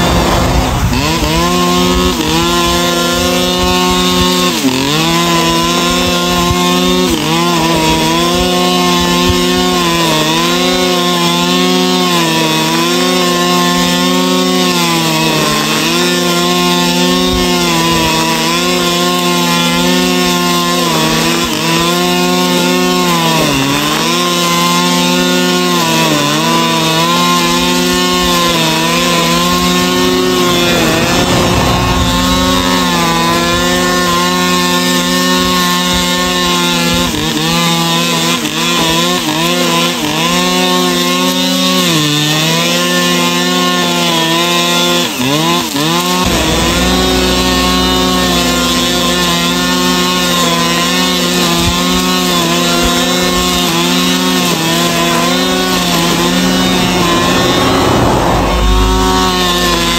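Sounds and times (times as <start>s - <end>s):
brush cutter cutting grass: 0.0s - 59.9s.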